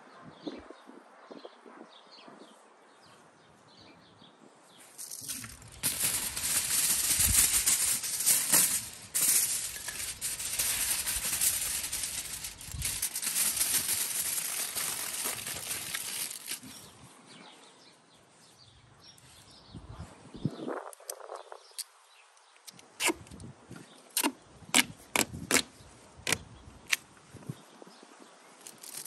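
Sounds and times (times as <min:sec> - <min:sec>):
aluminium foil crinkling: 0:04.9 - 0:16.9, 0:28.7 - 0:29.0.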